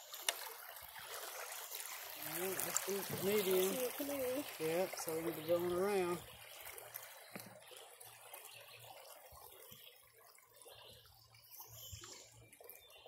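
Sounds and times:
river water trickling: 0:00.0 - 0:13.0
soft knocks on canoe: 0:03.0 - 0:03.8.

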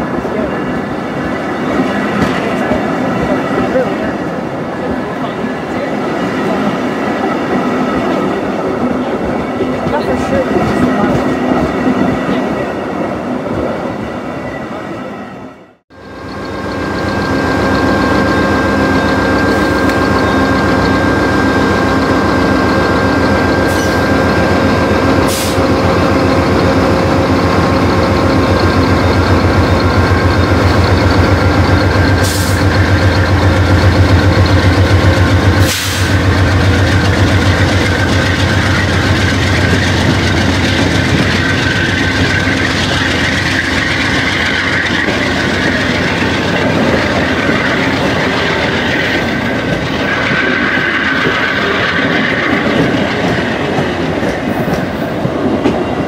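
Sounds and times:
diesel train engine throbbing: 0:15.9 - 0:56.0.

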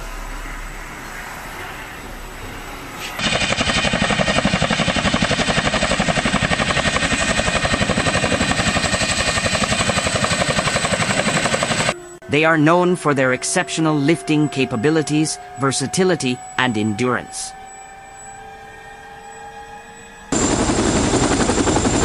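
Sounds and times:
helicopter rotor chop: 0:03.2 - 0:12.7, 0:20.3 - 0:22.0.

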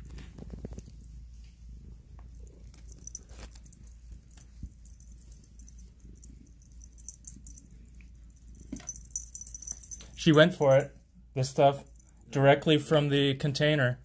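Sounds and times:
light clicks and rustles: 0:00.0 - 0:10.8.

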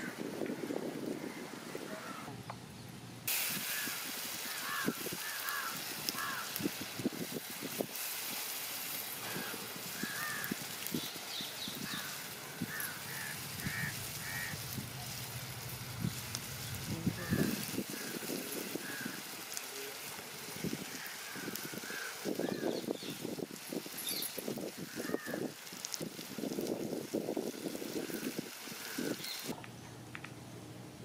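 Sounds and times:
steady hiss: 0:00.0 - 0:29.6
birds calling: 0:03.6 - 0:06.8, 0:08.9 - 0:23.4, 0:28.0 - 0:30.5.

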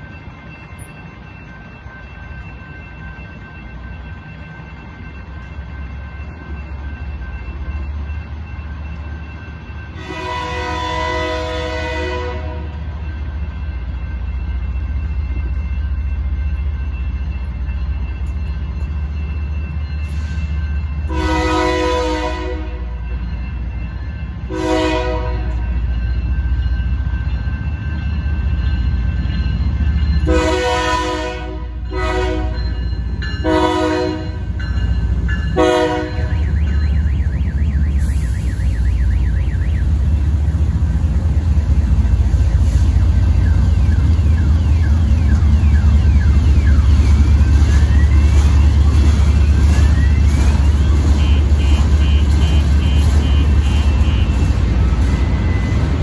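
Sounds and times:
crossing bells ringing: 0:00.0 - 0:56.0
locomotive rumble: 0:00.0 - 0:56.0
locomotive horn blasts: 0:10.0 - 0:12.8, 0:21.1 - 0:23.0, 0:24.5 - 0:25.6, 0:30.3 - 0:32.6, 0:33.4 - 0:34.4, 0:35.6 - 0:39.9, 0:51.0 - 0:54.6.

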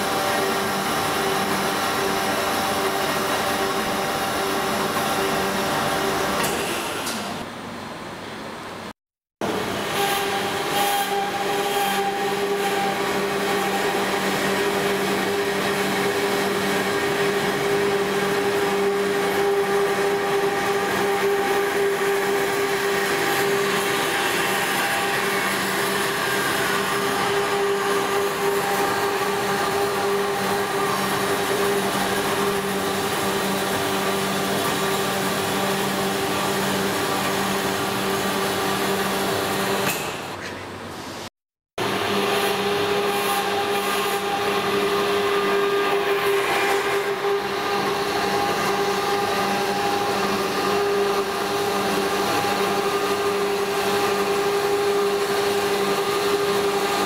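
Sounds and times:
band saw motor hum: 0:09.4 - 0:39.7.

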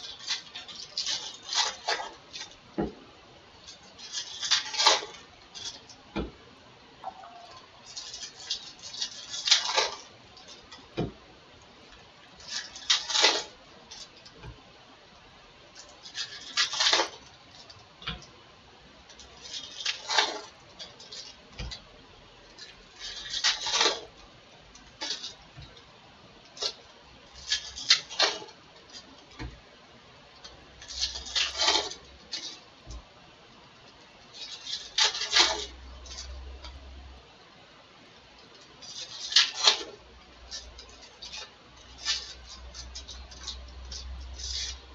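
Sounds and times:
foil wrappers tearing and crinkling: 0:00.0 - 0:02.6, 0:03.6 - 0:05.8, 0:07.5 - 0:10.7, 0:12.4 - 0:14.3, 0:15.8 - 0:17.8, 0:19.1 - 0:21.8, 0:22.6 - 0:24.2, 0:27.4 - 0:29.2, 0:30.8 - 0:32.6, 0:34.3 - 0:36.4, 0:38.8 - 0:44.8.

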